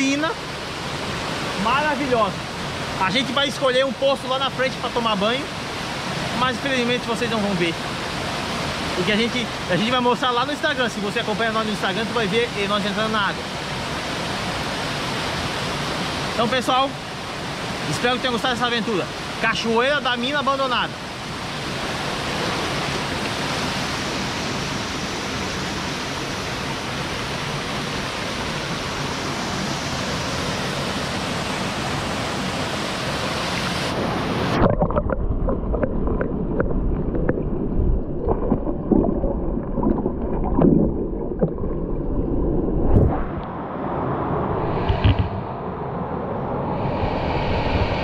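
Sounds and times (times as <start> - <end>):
low knocks and thumps: 44.8 - 45.4.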